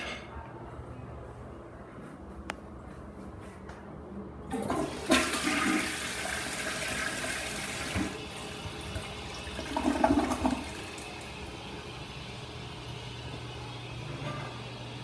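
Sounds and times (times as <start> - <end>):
toilet water rushing into bowl: 4.5 - 11.6
toilet bowl gurgling: 4.5 - 12.2.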